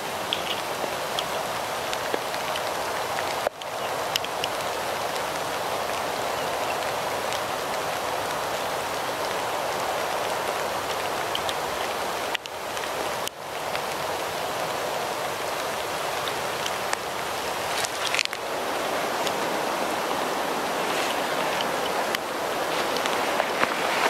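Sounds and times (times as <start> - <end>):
steady rain hiss: 0.0 - 24.0
faint drip ticks: 0.2 - 8.4, 9.2 - 14.0.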